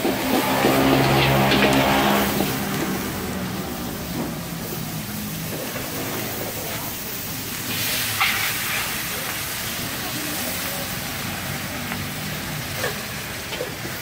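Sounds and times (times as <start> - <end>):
food sizzling in a wok: 0.0 - 14.0
metal spatula scraping a wok: 0.2 - 3.1, 7.7 - 9.1.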